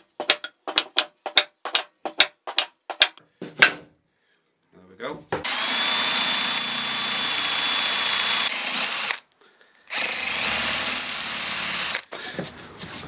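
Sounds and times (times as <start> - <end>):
cordless drill boring into wood: 5.4 - 12.1.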